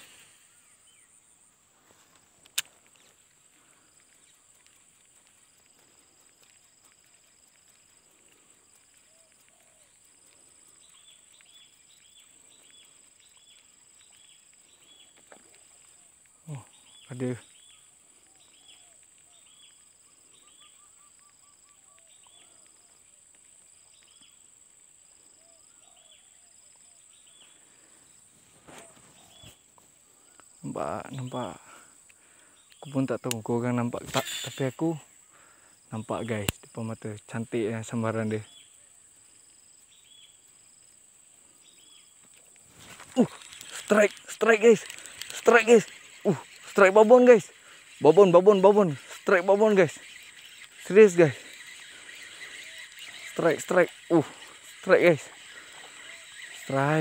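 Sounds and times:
sharp click: 2.4 - 2.7
short bird calls: 8.2 - 23.2, 25.2 - 36.5, 41.6 - 57.0
high-pitched insect drone: 32.6 - 57.0
quick run of bird notes: 42.7 - 57.0.

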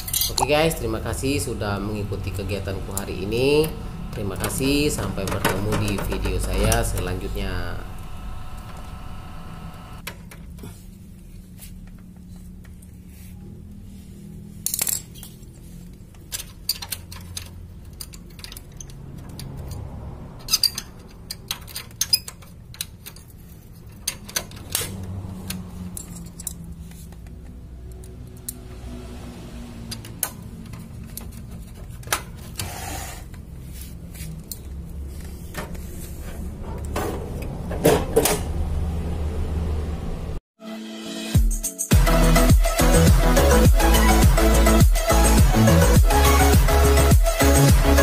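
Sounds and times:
hands handling photocopier parts: 3.0 - 7.4, 29.9 - 38.5.

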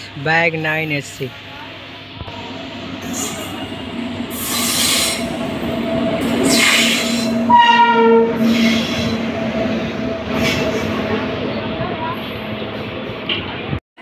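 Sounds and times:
train rolling in humming: 1.6 - 13.8
train horn blast: 2.4 - 12.0.

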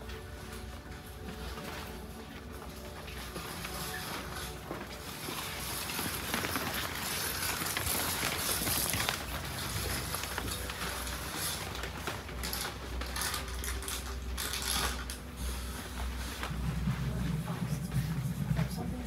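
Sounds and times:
scratching and rubbing textures: 0.0 - 19.0
small clicks and rattles: 3.2 - 16.4.

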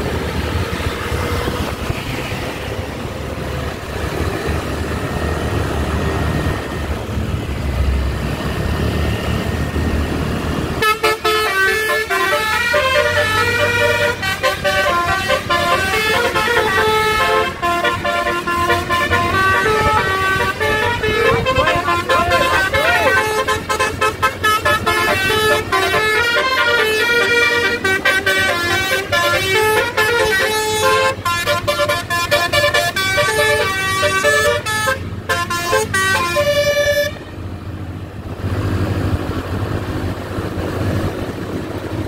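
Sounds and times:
motorcycles running: 0.0 - 42.0
road traffic engines: 0.0 - 42.0
musical multi-tone bus horn: 10.8 - 37.4.

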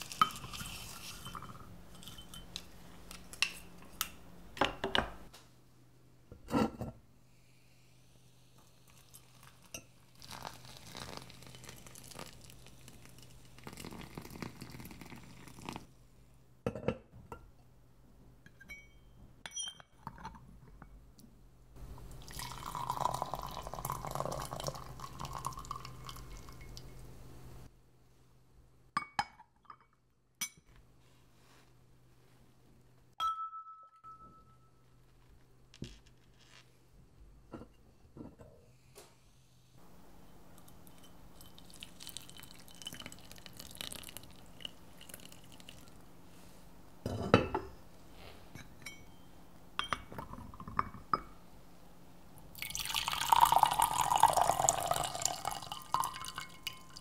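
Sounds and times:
tea pouring: 0.0 - 2.1, 8.6 - 15.9, 21.8 - 27.1, 40.6 - 46.1, 52.5 - 57.0
tea ware clinking: 0.1 - 2.7, 22.3 - 26.9, 40.9 - 44.2, 52.6 - 57.0.

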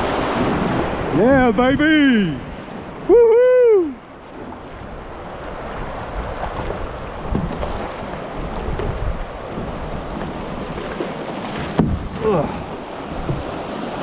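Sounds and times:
wind buffeting microphone: 0.0 - 14.0
man shouting: 3.1 - 4.0.

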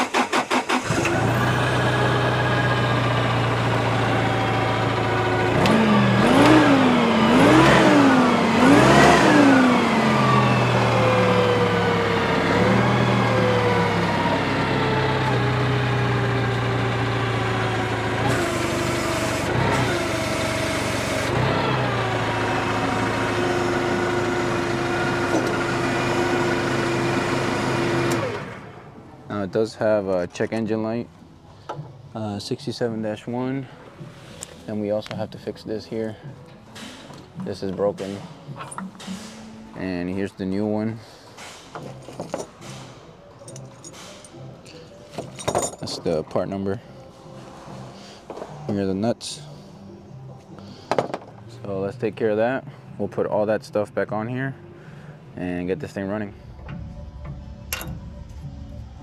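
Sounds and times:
engine cranking: 0.0 - 28.8
forklift engine revving and idling: 0.0 - 29.3.

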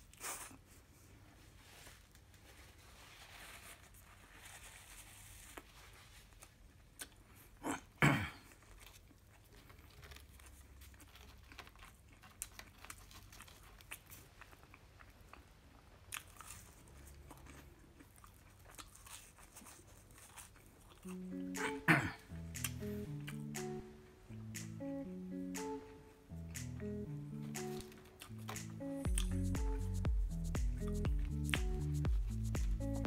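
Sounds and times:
person chewing food: 8.4 - 23.6, 27.4 - 32.8
wet mouth clicks: 21.1 - 23.8.

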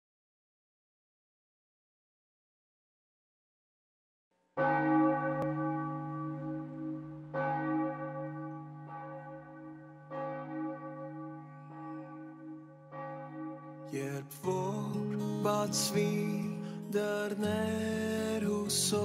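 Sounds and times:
church bell tolling: 4.6 - 19.0.

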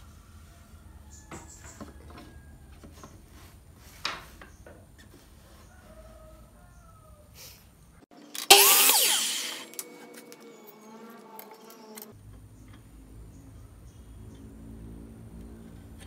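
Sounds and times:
saw blade whining down: 8.3 - 12.1
miter saw cutting wood: 8.4 - 12.1.

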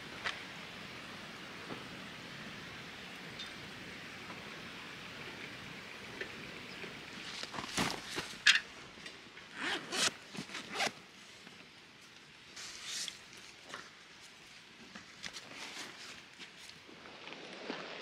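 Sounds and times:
zipper on fabric bag: 9.6 - 10.9.

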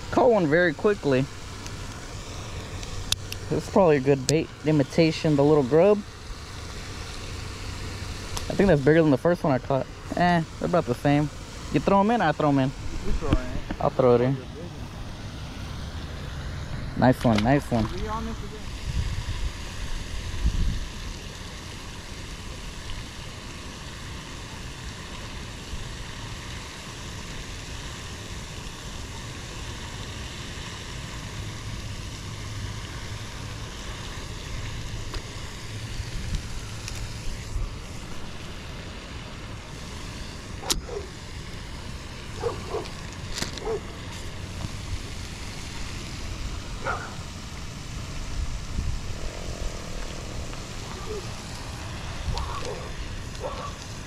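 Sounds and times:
wind rumble on microphone: 17.8 - 21.2, 46.3 - 54.0.

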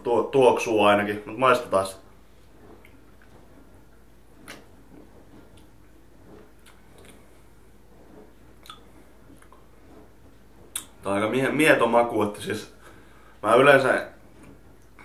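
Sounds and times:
low steady hum: 0.0 - 15.0
lip and tongue smacks: 8.6 - 9.6.

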